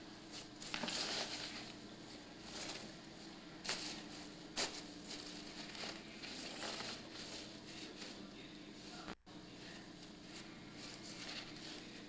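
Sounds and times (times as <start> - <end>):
foam packing peanuts rustling: 0.4 - 1.8, 3.6 - 8.2.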